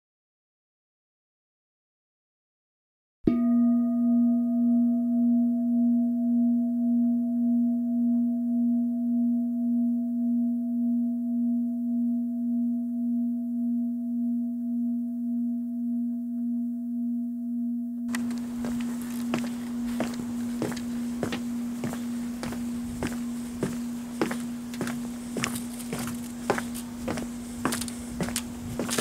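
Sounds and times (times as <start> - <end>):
deep bell-like metal tone ringing: 3.3 - 14.6.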